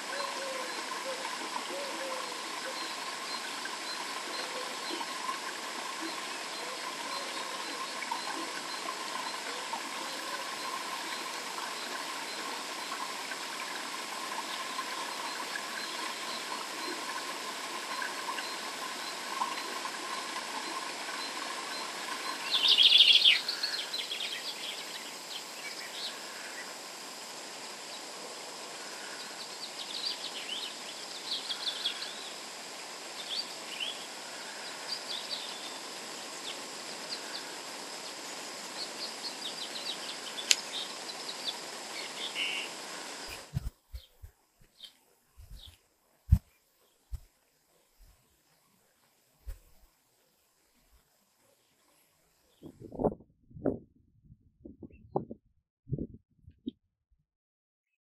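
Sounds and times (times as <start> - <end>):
steady background hiss: 0.0 - 52.6
birds chirping: 21.2 - 26.2, 38.8 - 46.5.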